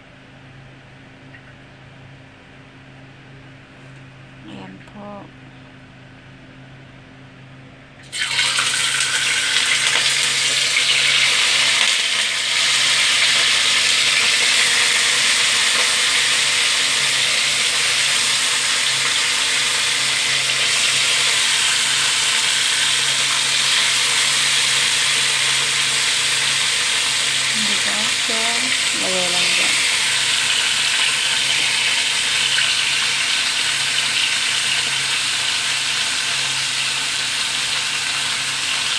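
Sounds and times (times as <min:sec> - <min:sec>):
fish sizzling in hot oil: 0:08.0 - 0:38.9.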